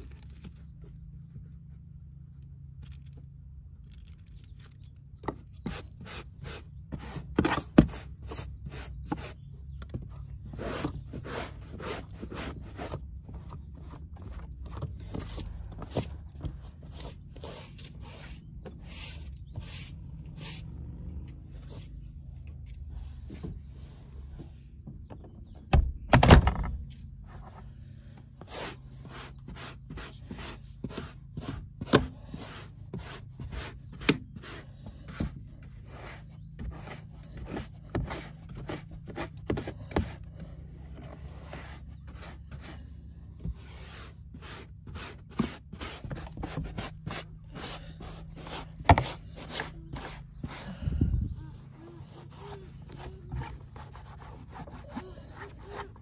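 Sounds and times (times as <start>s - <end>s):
brush scrubbing carpet: 10.6s - 13.2s, 28.4s - 40.3s, 43.5s - 50.9s, 51.8s - 56.0s.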